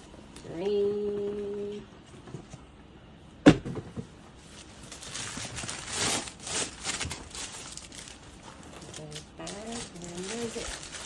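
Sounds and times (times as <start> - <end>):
tissue paper rustling: 4.4 - 11.0.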